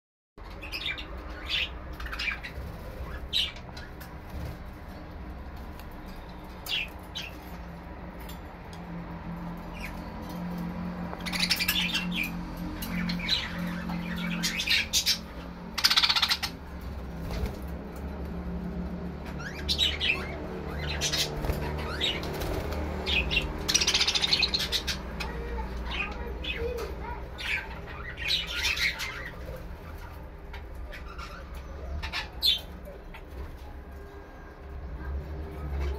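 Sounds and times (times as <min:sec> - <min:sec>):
budgerigars chirping: 0:00.4 - 0:04.5, 0:11.1 - 0:16.6, 0:19.3 - 0:33.4.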